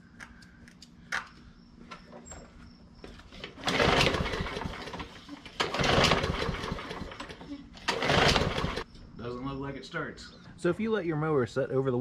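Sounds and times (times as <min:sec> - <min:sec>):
lawn mower engine cranking: 0:03.3 - 0:08.9.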